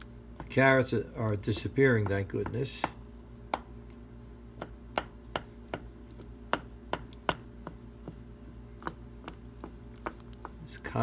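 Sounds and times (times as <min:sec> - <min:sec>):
steady low hum: 0:00.0 - 0:11.0
wooden spoon knocking against pot: 0:01.4 - 0:03.7.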